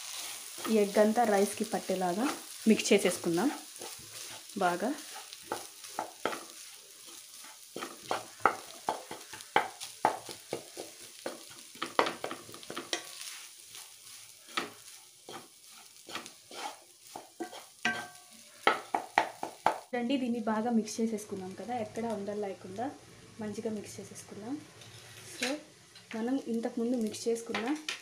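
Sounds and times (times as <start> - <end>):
spatula scraping a wok: 0.0 - 19.7
faint frying sizzle: 0.0 - 28.0.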